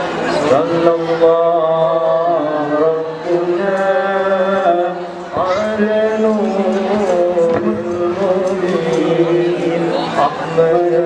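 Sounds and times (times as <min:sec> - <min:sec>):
person chanting: 0:00.3 - 0:11.0.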